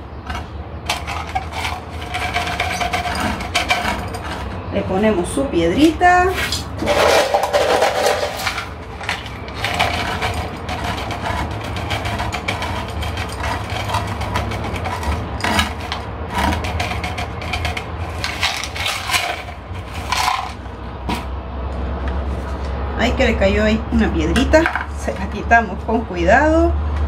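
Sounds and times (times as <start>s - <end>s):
pebbles rattling and clinking: 0.0s - 4.7s, 6.3s - 20.7s.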